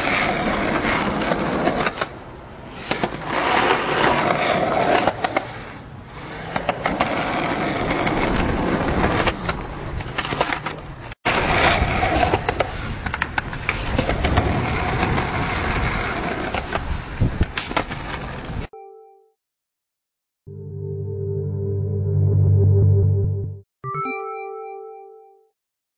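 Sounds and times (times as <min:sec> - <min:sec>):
skateboard wheels rolling on concrete: 0:00.0 - 0:18.7
skateboard clacking: 0:02.8 - 0:18.6.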